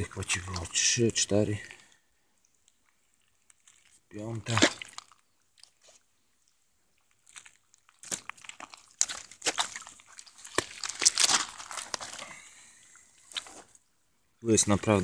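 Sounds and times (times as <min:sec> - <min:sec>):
net mesh rustling: 0:10.5 - 0:12.3.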